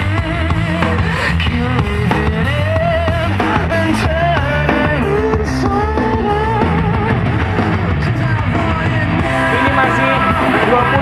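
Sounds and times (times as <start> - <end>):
dense bass from subwoofer: 0.0 - 11.0
rock song with singing: 0.0 - 11.0.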